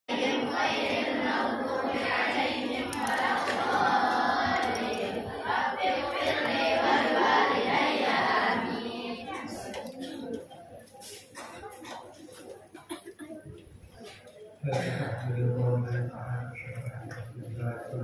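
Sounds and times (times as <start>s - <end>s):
group chanting in unison: 0.1s - 9.8s.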